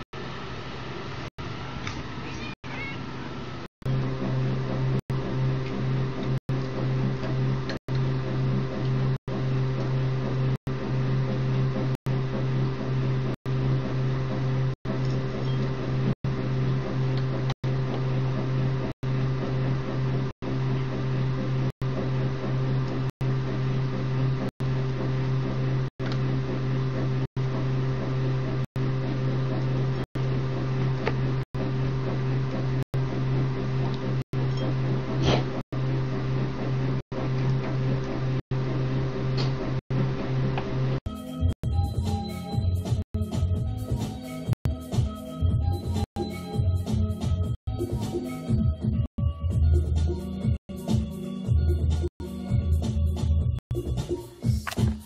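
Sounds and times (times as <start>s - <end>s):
low mechanical hum: 0.0s - 41.0s.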